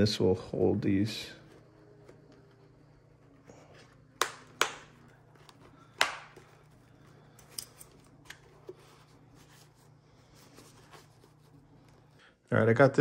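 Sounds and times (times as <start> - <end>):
plastic clips snapping: 4.2 - 6.5.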